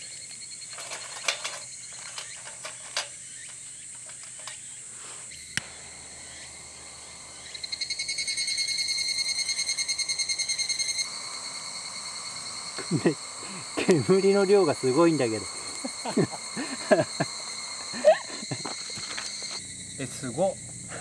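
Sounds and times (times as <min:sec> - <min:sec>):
twigs clicking in a metal stove: 0:00.0 - 0:08.0, 0:12.1 - 0:19.6
insects chirring: 0:00.0 - 0:21.0
animal rapid pulsed trill: 0:04.7 - 0:21.0.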